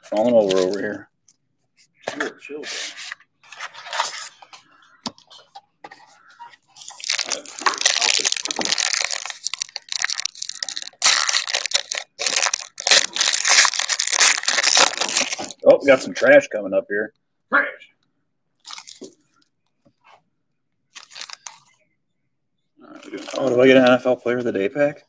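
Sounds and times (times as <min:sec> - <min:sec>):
cardboard packaging tearing and crinkling: 0:00.2 - 0:01.0, 0:06.8 - 0:15.6, 0:21.0 - 0:21.6.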